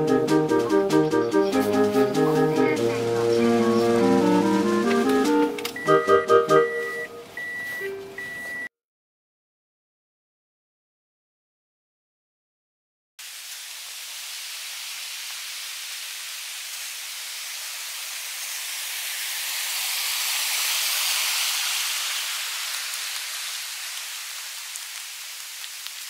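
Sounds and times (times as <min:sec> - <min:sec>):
stream rushing over rocks: 0:13.2 - 0:26.0.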